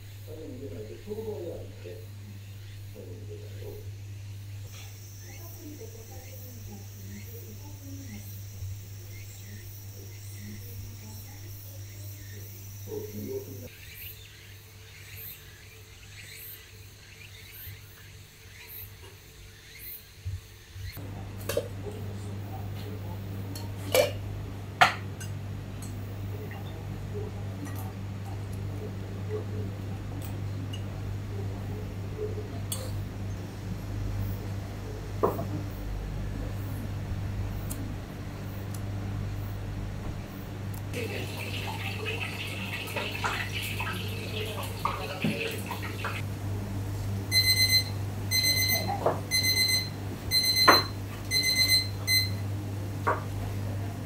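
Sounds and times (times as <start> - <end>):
steady low hum: 0.0 - 18.6, 19.6 - 54.0
low hum: 21.0 - 44.9
electronic timer beeping: 47.3 - 52.4.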